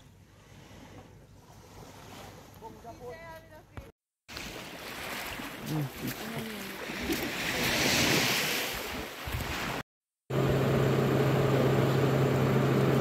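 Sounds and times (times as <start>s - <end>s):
sea surf washing on shore: 4.3s - 9.8s.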